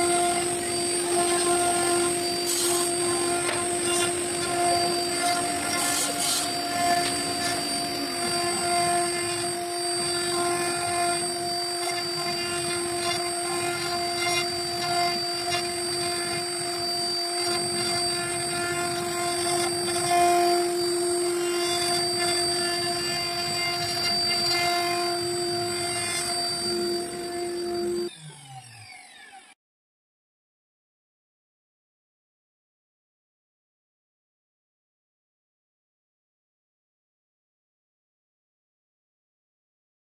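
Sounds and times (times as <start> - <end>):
cnc router spindle whining: 0.0 - 29.6
router bit carving wood: 0.0 - 29.6.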